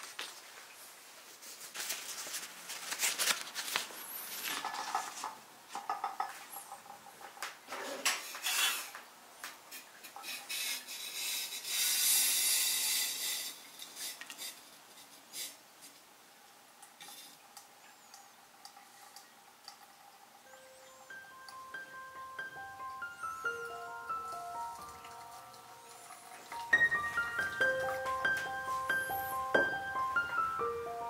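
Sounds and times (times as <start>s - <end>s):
paper filter rustling: 0.0s - 5.4s
thin water trickle: 13.2s - 29.2s
kettle pouring water: 16.8s - 30.2s.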